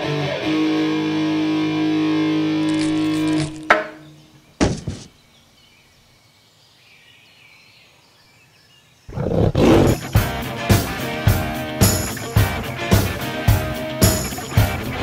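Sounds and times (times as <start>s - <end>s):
sharp knock: 4.6s - 5.1s
thud: 4.6s - 5.1s
cartoon tiger roaring: 9.1s - 10.1s.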